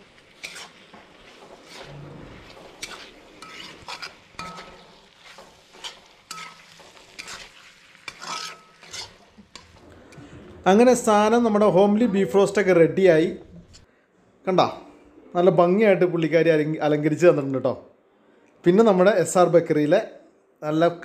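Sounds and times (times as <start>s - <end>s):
meat sizzling: 0.0s - 9.9s
spatula scraping iron pan: 0.2s - 9.8s.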